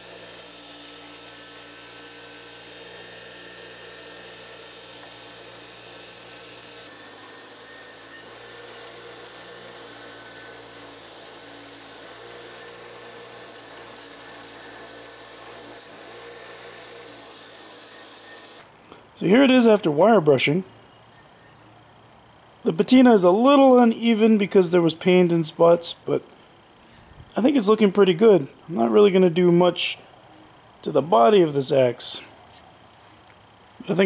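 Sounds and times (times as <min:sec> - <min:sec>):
wire wheel grinder running: 0:00.0 - 0:18.7.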